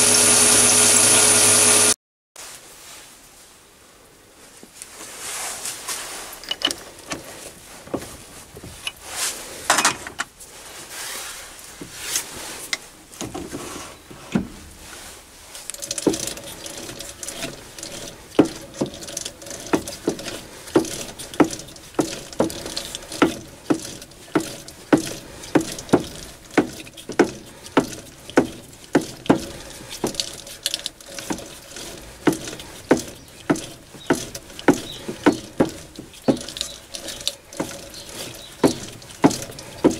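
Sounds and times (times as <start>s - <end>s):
metal clatter and handling: 6.2s - 9.0s, 9.7s - 10.4s, 14.3s - 39.9s.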